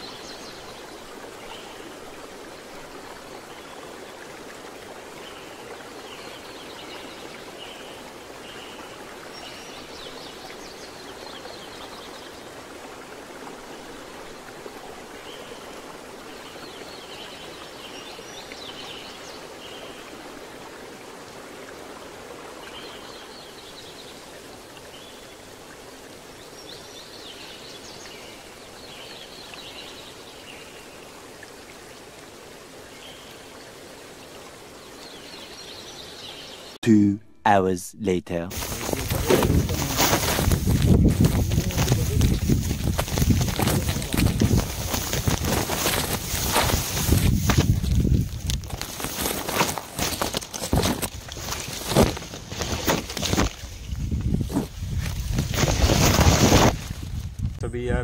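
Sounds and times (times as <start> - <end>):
river flowing: 0.0 - 36.8, 38.5 - 53.9.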